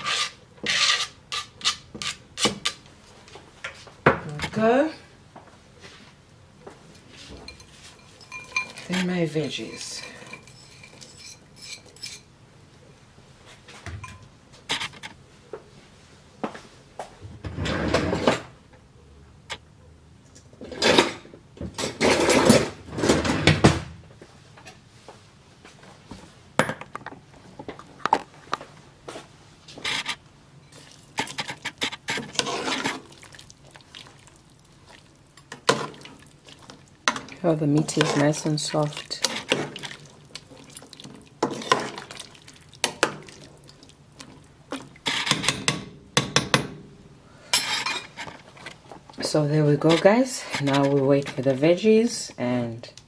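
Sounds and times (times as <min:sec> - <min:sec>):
scraping and rustling: 0:27.4 - 0:45.5, 0:47.6 - 0:51.6.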